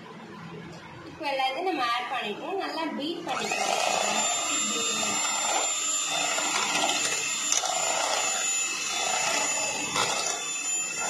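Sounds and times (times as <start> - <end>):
electric hand mixer whirring: 3.2 - 11.0.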